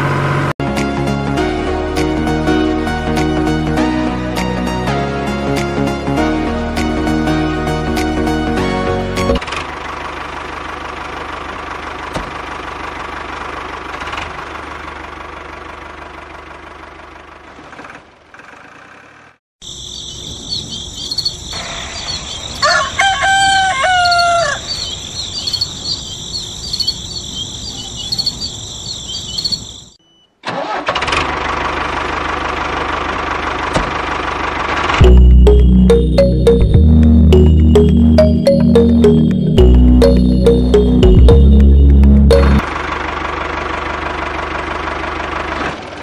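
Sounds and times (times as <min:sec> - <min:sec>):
rooster crowing: 0:22.5 - 0:24.9
high-pitched chirping: 0:35.0 - 0:42.6.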